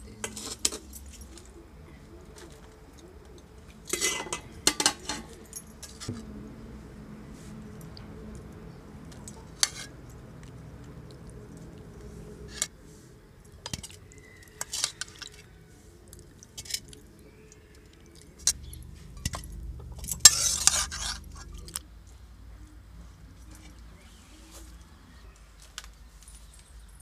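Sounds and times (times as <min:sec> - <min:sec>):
metal spoon clinking on metal pot: 0:03.9 - 0:06.1.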